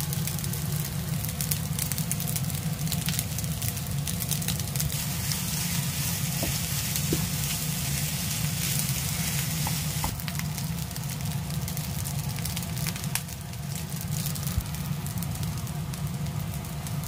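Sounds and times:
fried rice sizzling in a pan: 0.0s - 17.0s
low hum: 4.7s - 10.2s.

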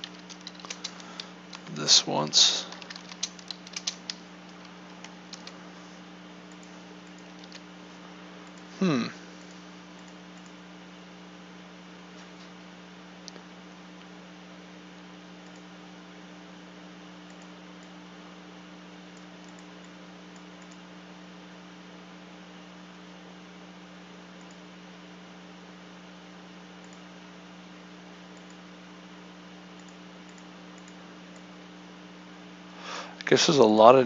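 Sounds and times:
electrical hum: 0.0s - 34.0s
faint clicks: 29.8s - 31.4s.

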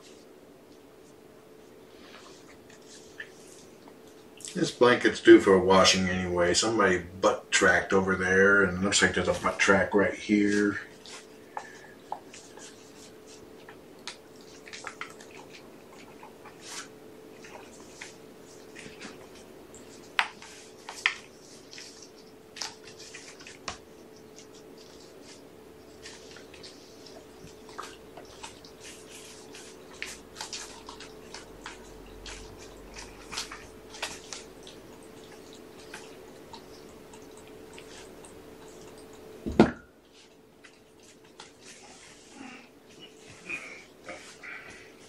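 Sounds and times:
kittens playing on carpet: 10.8s - 39.4s, 40.0s - 45.0s.

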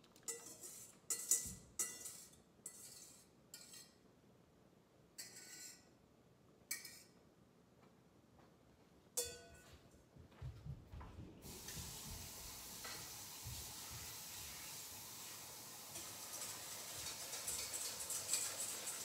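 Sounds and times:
metal utensil clinking steel bowl: 0.2s - 4.0s, 16.0s - 19.0s
soft footstep thumps: 9.7s - 12.2s
sink faucet running: 11.4s - 19.0s.

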